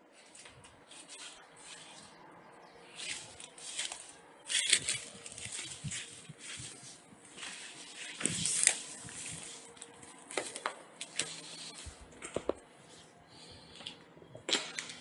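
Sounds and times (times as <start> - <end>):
footsteps through dry grass: 2.9 - 10.6.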